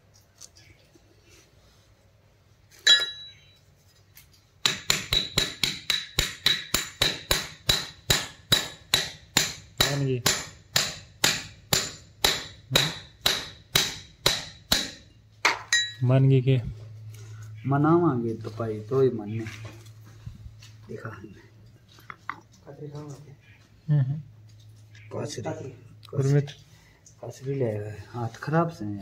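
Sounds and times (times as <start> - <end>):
hammer tapping steel ball: 2.8 - 3.6.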